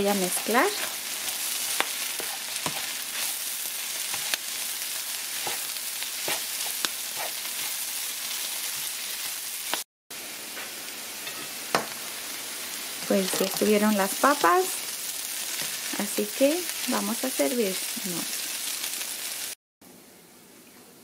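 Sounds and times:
food sizzling in frying pan: 0.0 - 19.6
spatula scraping and tapping: 1.7 - 3.3, 5.4 - 7.7.

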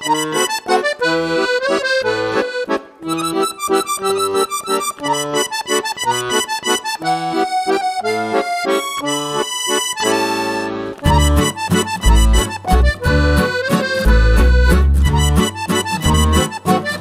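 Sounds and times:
accordion-like melody: 0.0 - 17.0.

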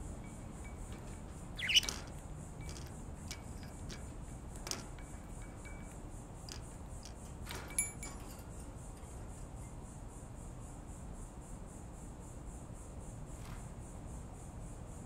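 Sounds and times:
budgie chirping: 1.4 - 2.9.

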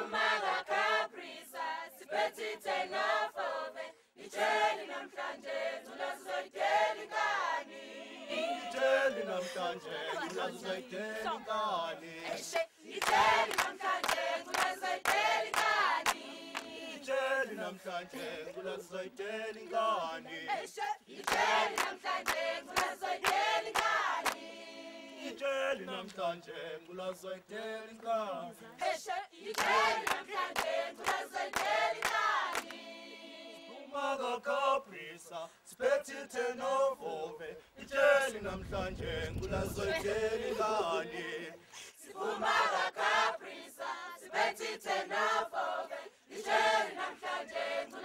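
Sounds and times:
choir singing a cappella: 0.0 - 48.0.

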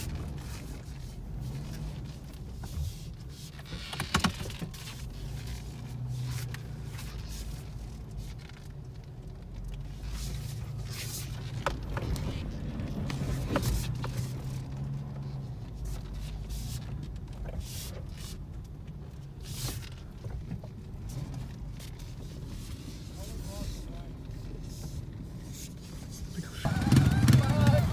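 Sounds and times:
truck engine running: 23.7 - 27.9.

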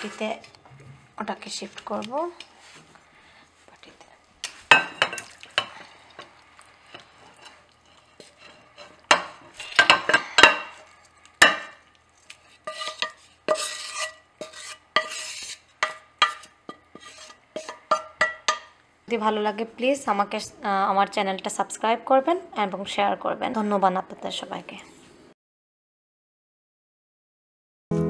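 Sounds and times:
spatula scraping frying pan: 4.6 - 18.7.

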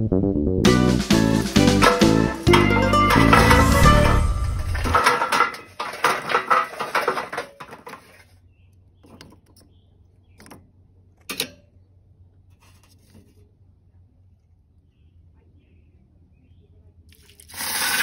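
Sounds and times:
dense clatter: 1.3 - 8.3
wood chunks knocking on charcoal: 1.4 - 8.2.

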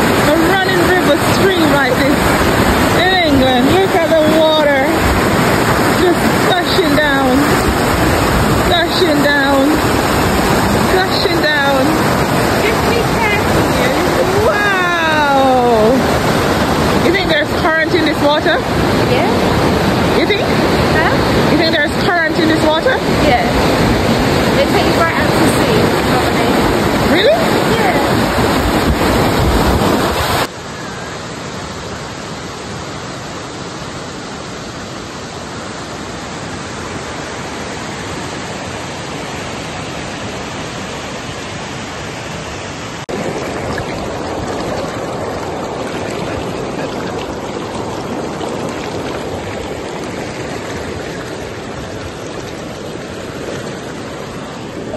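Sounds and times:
water rushing over boulders: 0.0 - 54.9.

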